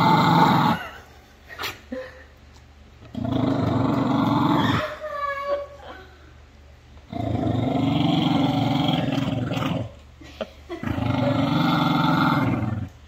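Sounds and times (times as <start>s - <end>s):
dog growling low: 3.0s - 5.0s, 7.1s - 10.0s, 10.8s - 13.0s.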